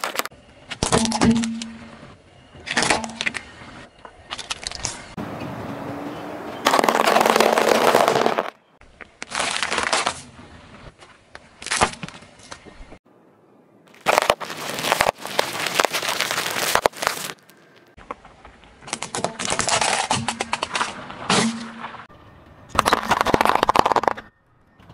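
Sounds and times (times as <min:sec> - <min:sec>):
tyre crushing plastic objects: 0:00.0 - 0:01.8, 0:06.6 - 0:08.6, 0:09.2 - 0:10.2, 0:13.9 - 0:17.9, 0:18.8 - 0:21.9, 0:22.7 - 0:24.3.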